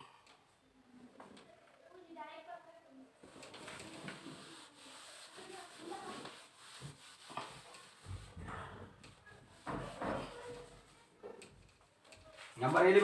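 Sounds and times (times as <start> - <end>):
eraser wiping a whiteboard: 3.2 - 11.2.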